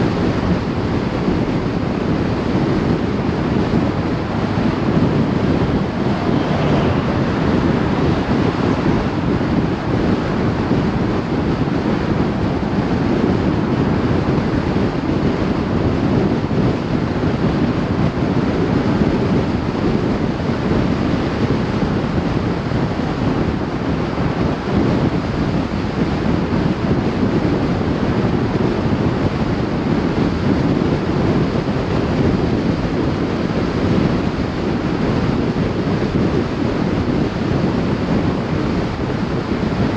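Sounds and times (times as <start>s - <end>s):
wind on microphone: 0.0s - 39.9s
tyre and road noise: 0.3s - 29.1s.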